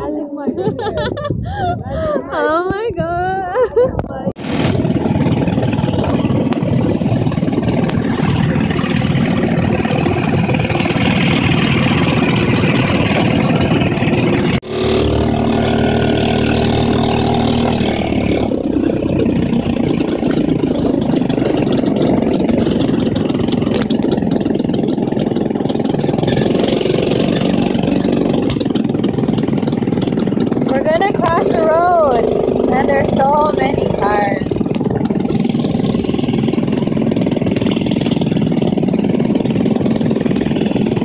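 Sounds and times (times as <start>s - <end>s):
wind noise on microphone: 0.0s - 26.6s
dune buggy engine running: 0.0s - 41.0s.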